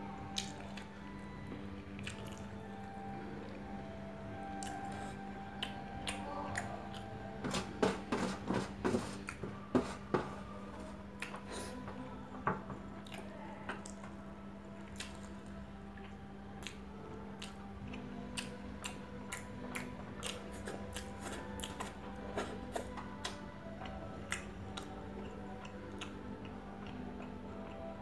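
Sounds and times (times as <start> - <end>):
chewing with mouth clicks: 2.0 - 3.7, 4.5 - 7.1, 13.0 - 14.0, 14.8 - 28.0.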